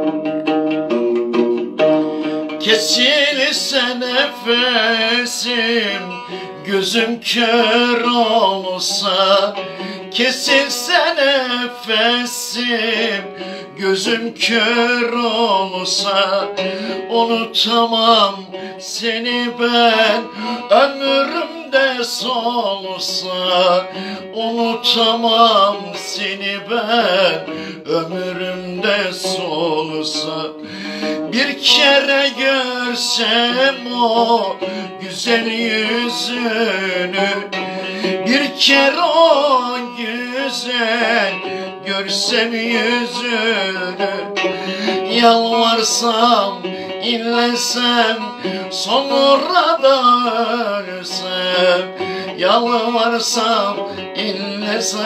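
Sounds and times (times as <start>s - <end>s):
plucked lute: 0.0s - 55.0s
man singing: 1.8s - 55.0s.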